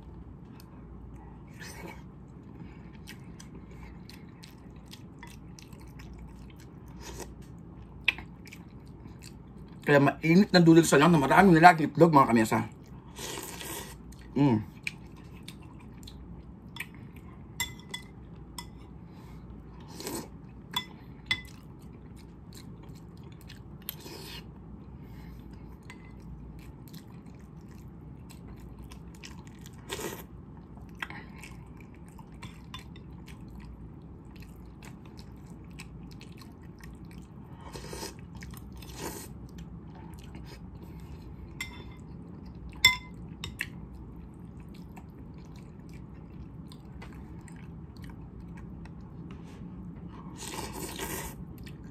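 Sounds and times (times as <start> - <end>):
chewing: 0.5 - 9.9, 19.9 - 24.6, 25.3 - 49.4.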